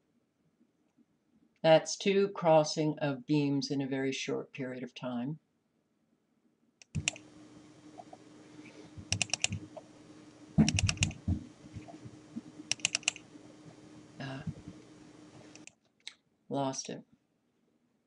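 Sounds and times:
computer mouse clicking: 6.8 - 7.3, 9.0 - 9.8, 10.6 - 11.2, 12.7 - 13.3, 15.5 - 15.8
low steady hum: 6.8 - 15.7.

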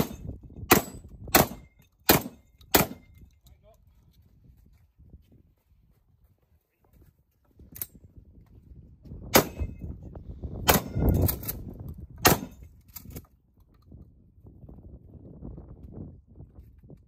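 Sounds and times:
wind on microphone: 0.0 - 1.7, 7.0 - 17.0
shotgun shots: 0.0 - 3.1, 9.3 - 9.8, 10.7 - 11.2, 12.2 - 12.6.

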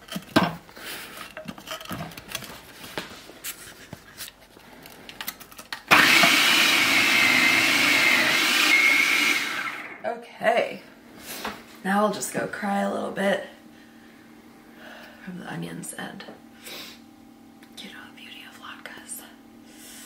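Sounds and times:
food processor motor whining: 5.9 - 10.0.

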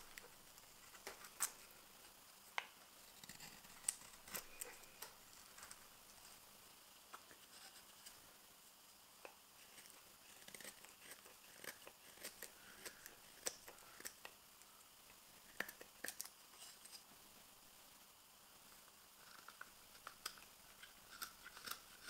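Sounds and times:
knife cutting wood shavings: 9.6 - 14.2.

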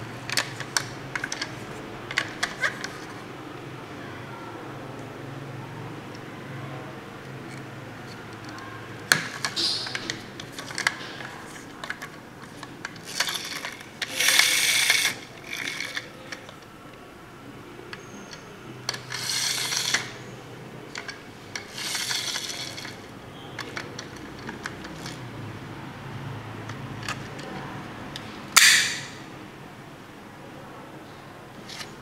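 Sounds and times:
toy truck friction motors whirring: 0.1 - 3.2, 7.5 - 16.6, 18.0 - 20.3, 20.9 - 25.2.

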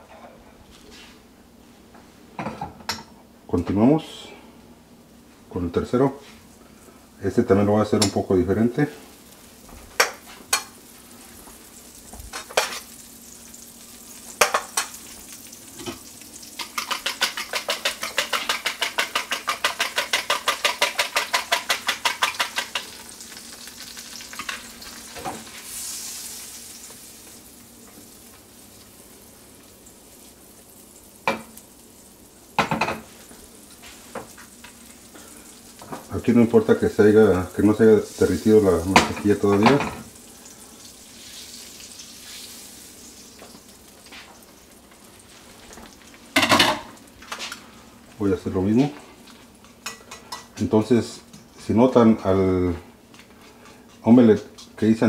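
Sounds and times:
eggs beaten in a bowl: 16.6 - 23.0.

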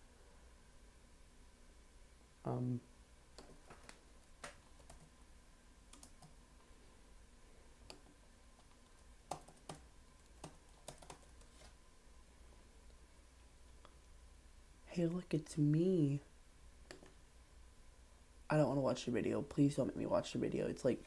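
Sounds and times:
computer keyboard typing: 3.4 - 5.1, 5.9 - 6.4, 7.9 - 11.6.

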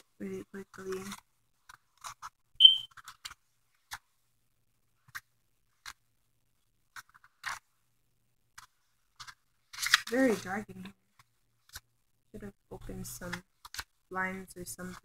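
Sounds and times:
pages flipping: 0.9 - 4.1, 6.9 - 7.7, 8.6 - 11.9, 13.3 - 14.0
brief high squeak: 2.6 - 2.9.

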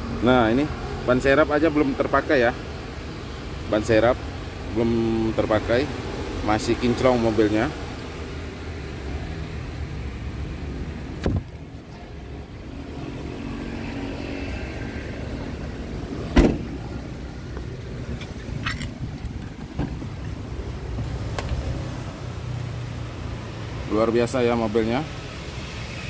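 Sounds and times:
car engine idling: 15.2 - 21.6
heavy thumps: 19.2 - 20.2.

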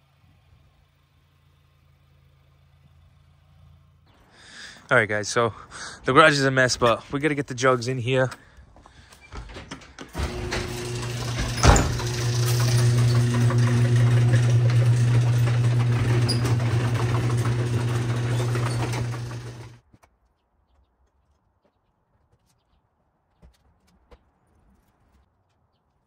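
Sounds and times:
garage door motor humming: 9.2 - 19.8.

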